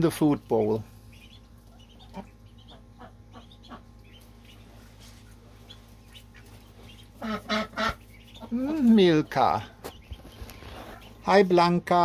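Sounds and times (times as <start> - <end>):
ducklings peeping: 0.0 - 12.0.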